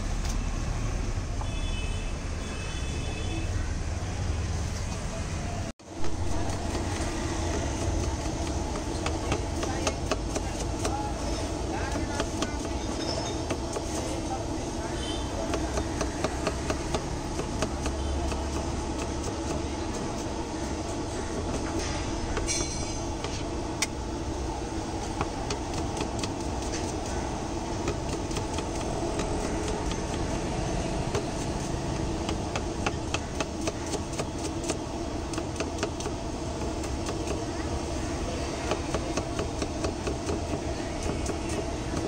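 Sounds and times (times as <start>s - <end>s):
knife chopping on a block: 6.3s - 11.1s, 15.4s - 19.7s, 31.0s - 37.5s, 38.6s - 42.0s.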